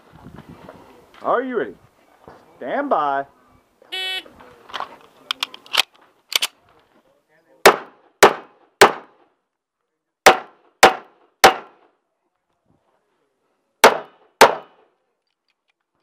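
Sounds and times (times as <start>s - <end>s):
pistol shots: 7.6s - 9.2s, 10.3s - 11.8s, 13.8s - 14.8s.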